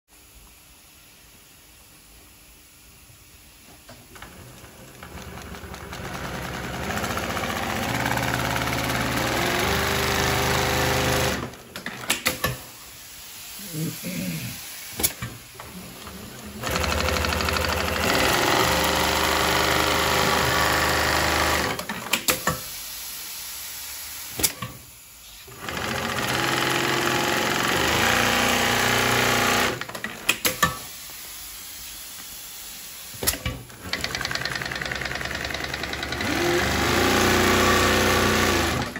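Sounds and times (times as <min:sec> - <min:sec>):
industrial sewing machine stitching: 0:04.1 - 0:12.6, 0:15.1 - 0:22.5, 0:25.5 - 0:30.6, 0:33.2 - 0:38.9.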